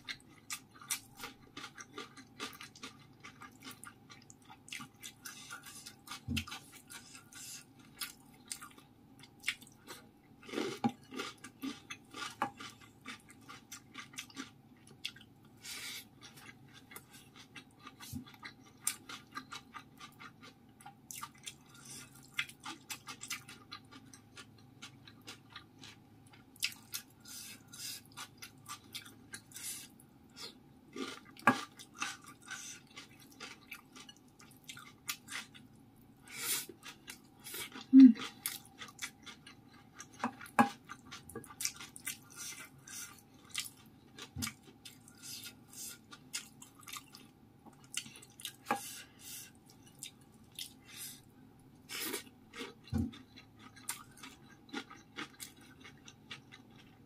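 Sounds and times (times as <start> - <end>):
chewing: 0.1 - 57.0.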